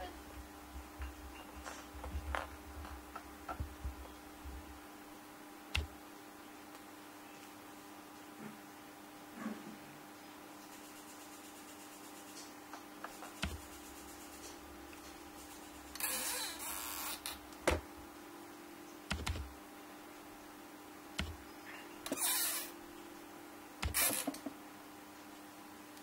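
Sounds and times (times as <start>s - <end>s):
faint steady hum: 0.0s - 26.0s
taps and knocks on plastic: 12.8s - 13.6s, 17.6s - 17.8s, 21.2s - 21.4s.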